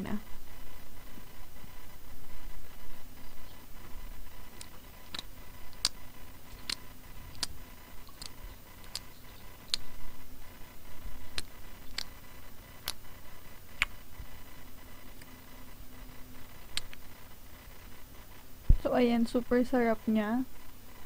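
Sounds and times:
wet chewing clicks: 4.5s - 10.0s, 11.2s - 12.2s, 12.8s - 13.1s, 13.7s - 14.0s.

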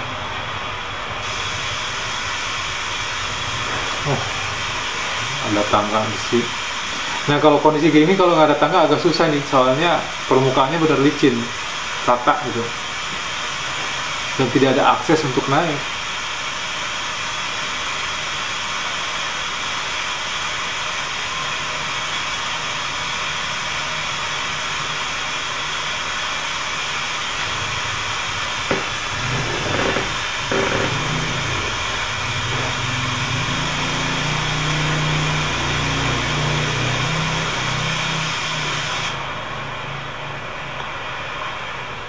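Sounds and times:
knocks: 28.7s - 31.1s.

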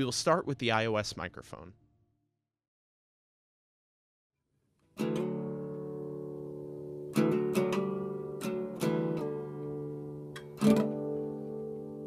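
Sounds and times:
acoustic guitar strumming: 4.8s - 12.0s.

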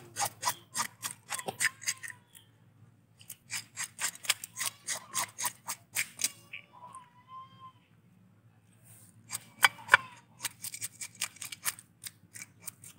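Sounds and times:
fish scaler scraping scales: 0.0s - 2.2s, 3.2s - 6.4s, 9.2s - 12.9s.

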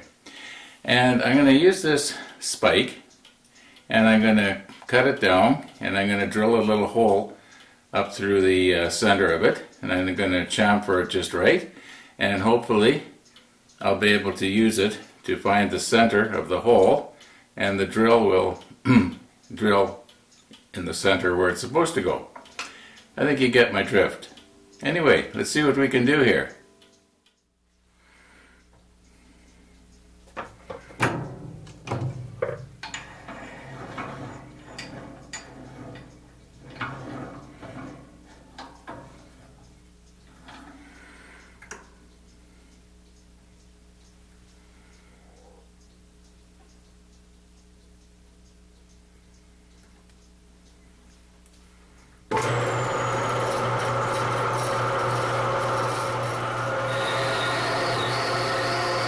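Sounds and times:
low steady hum: 0.0s - 52.3s
metal clanks and clicks: 30.3s - 39.7s
bandsaw running: 52.3s - 59.0s.

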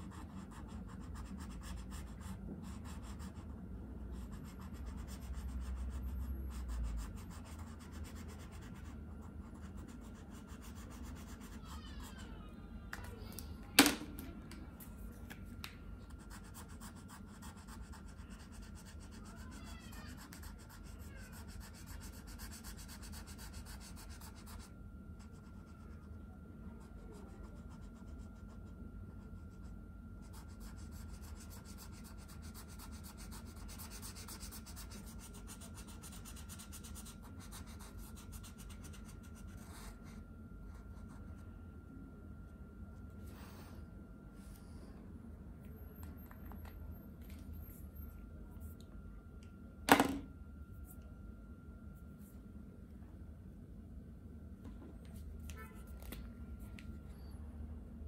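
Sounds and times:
steady low hum: 0.0s - 58.0s
faint high tone: 10.1s - 15.1s, 18.1s - 22.4s, 39.5s - 53.3s, 55.2s - 57.8s
marker scratching on paper: 16.1s - 26.0s, 30.3s - 41.2s.

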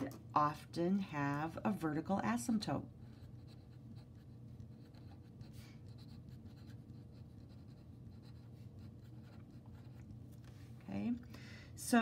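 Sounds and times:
marker scratching on paper: 3.0s - 10.1s.

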